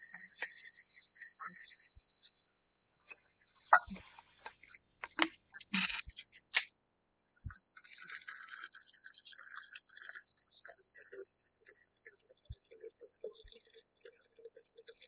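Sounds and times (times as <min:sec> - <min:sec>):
hot water pouring into teapot: 0:07.4 - 0:15.0.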